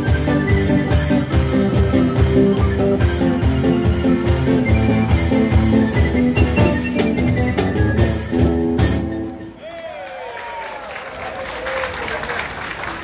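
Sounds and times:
wind instrument melody: 0.0 - 9.6.

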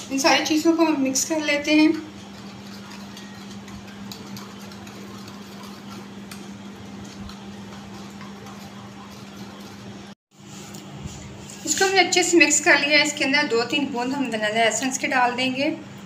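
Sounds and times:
spoon beating batter on plate: 2.1 - 10.0.

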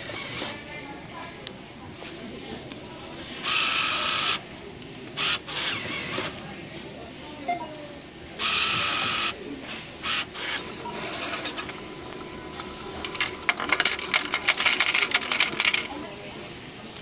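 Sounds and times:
machine mechanism whirring: 8.4 - 16.2
coins clattering into cup: 10.6 - 11.7, 12.6 - 16.2.

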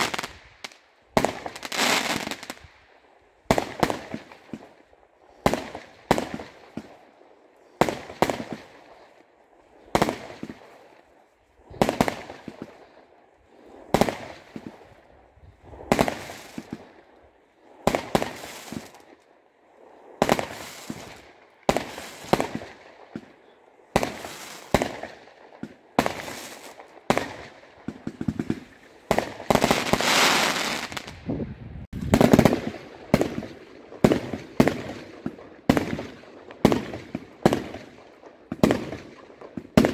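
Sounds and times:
fireworks bangs: 0.0 - 2.6, 5.4 - 7.0, 7.6 - 9.2, 9.9 - 10.9, 11.7 - 13.0, 13.8 - 15.0, 15.6 - 17.0, 17.8 - 19.1, 20.2 - 39.9
fireworks crackling: 0.0 - 39.9.

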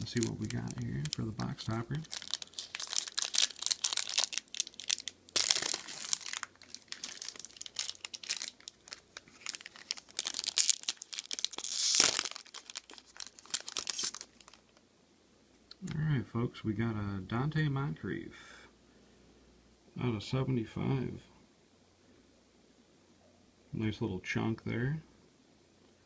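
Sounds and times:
foil wrapper crinkling: 0.0 - 14.8
foil wrapper ripping: 0.0 - 14.8.

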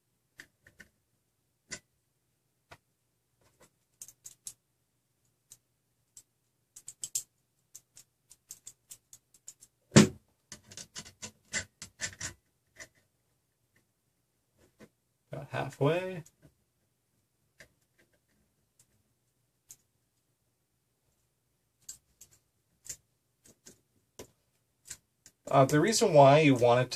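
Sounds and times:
small metal clicks and taps: 5.4 - 9.7.

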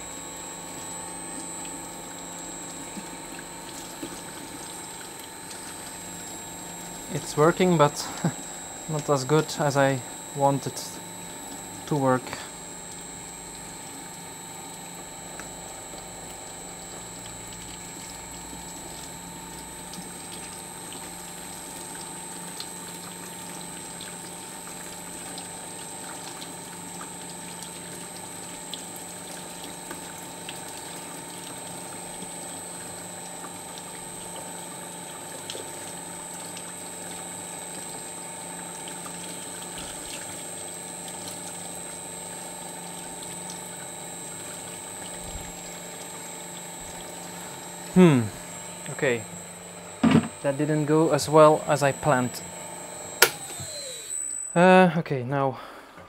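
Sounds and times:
water pouring and trickling: 0.1 - 54.3
paper shredder whining: 7.0 - 12.6, 45.2 - 54.7.

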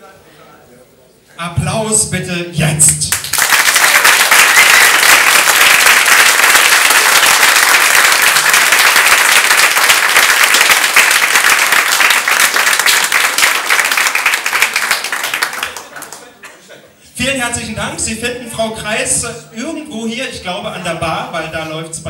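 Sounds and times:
audience applauding: 3.1 - 16.4.

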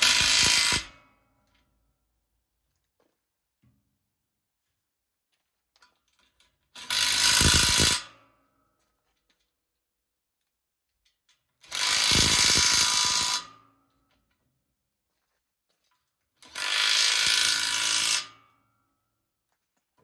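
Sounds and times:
cordless drill whirring: 6.8 - 8.0, 11.7 - 13.4, 16.4 - 18.2.

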